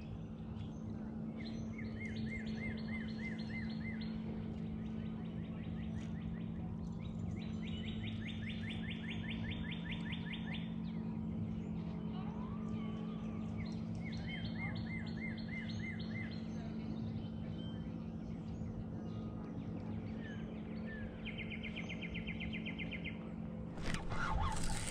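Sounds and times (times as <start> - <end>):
steady low hum: 23.6 - 24.9.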